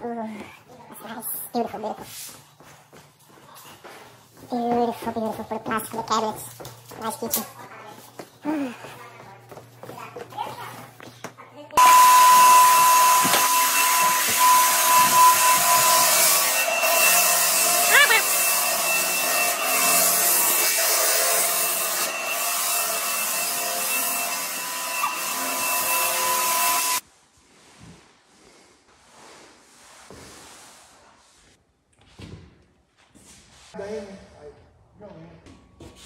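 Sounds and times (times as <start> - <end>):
floor sander whining: 11.8 - 27.0.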